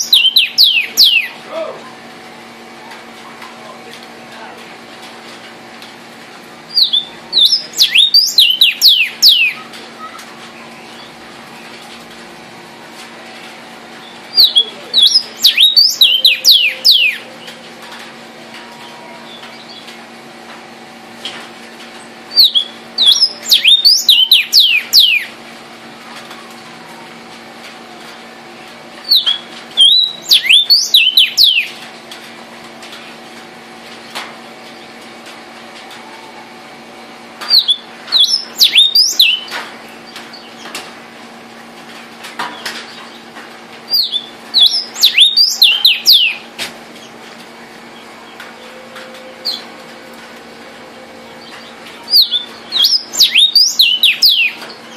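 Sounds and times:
bird singing down-slurred whistles: 0.0s - 1.4s, 6.8s - 9.6s, 14.4s - 17.2s, 22.4s - 25.3s, 29.1s - 31.7s, 37.5s - 39.5s, 44.0s - 46.4s, 52.2s - 54.6s.

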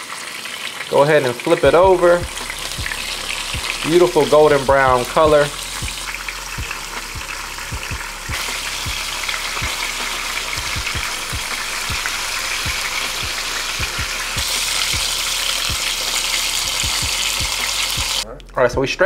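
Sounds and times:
chicken sizzling in oil: 0.0s - 18.2s
faint low thumps: 1.6s - 14.4s.

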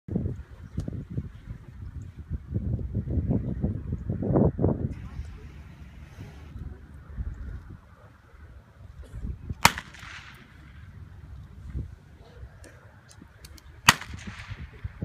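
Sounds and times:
pistol shots with echo: 9.6s - 10.8s, 13.8s - 14.8s.

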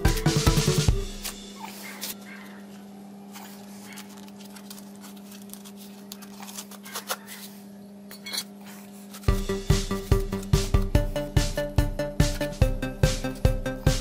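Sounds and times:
music with a strong beat: 0.0s - 1.4s, 9.3s - 14.0s
steady low hum: 0.0s - 14.0s.

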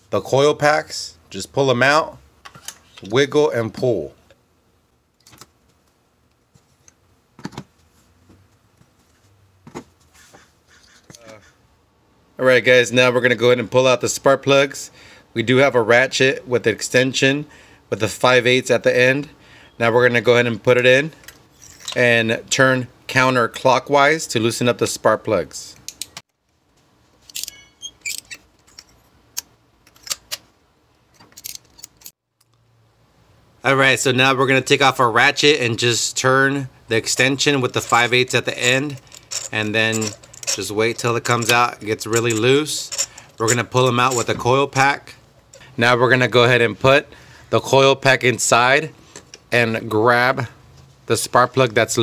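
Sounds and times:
metallic ring: 27.4s - 28.0s.

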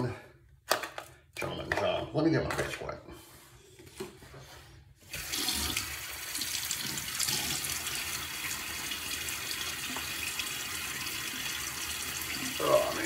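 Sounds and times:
tap water running into sink: 5.2s - 13.0s.

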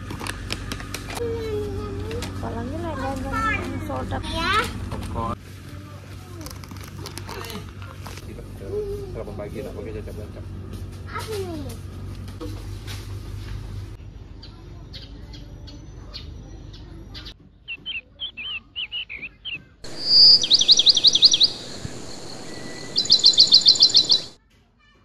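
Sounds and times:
background hum: 0.0s - 24.4s
songbird singing trills: 14.4s - 24.4s.

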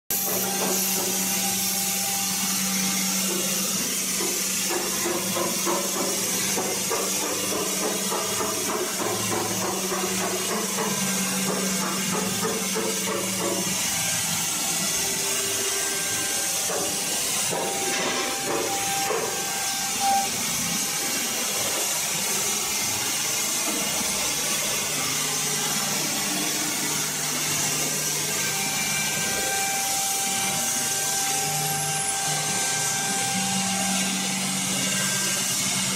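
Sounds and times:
router spindle cutting wood: 0.1s - 35.9s.

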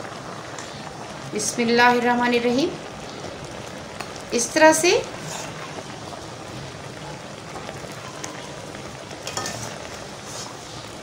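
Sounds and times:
water boiling and bubbling: 0.0s - 11.0s
metal spoon clinking on pot: 9.2s - 9.7s.

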